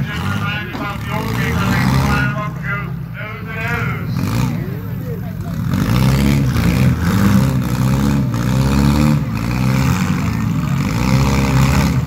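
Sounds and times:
car engines revving loudly: 0.0 - 12.0.

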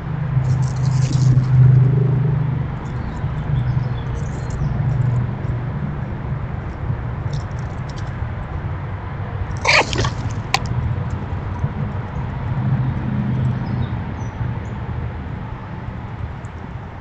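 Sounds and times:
loud animal call: 9.6 - 10.7.

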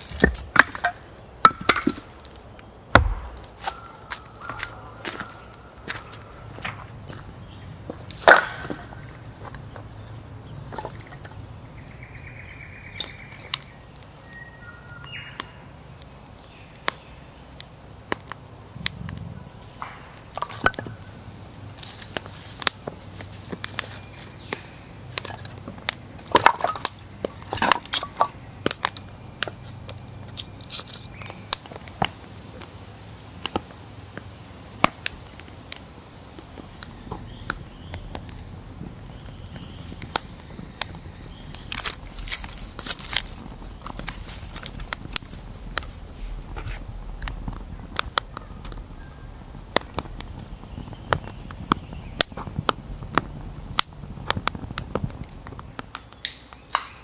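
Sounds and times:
bird calls: 3.5 - 15.7, 39.0 - 41.8, 48.2 - 49.5, 50.3 - 52.4.

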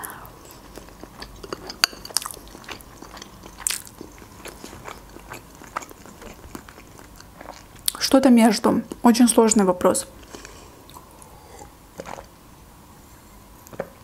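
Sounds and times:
chewing food: 0.4 - 8.0, 10.2 - 12.3.

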